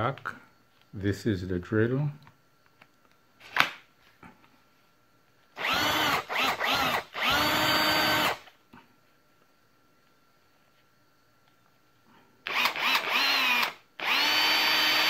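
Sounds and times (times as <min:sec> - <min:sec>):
cordless drill motor whining: 0:05.6 - 0:08.5, 0:12.4 - 0:15.0.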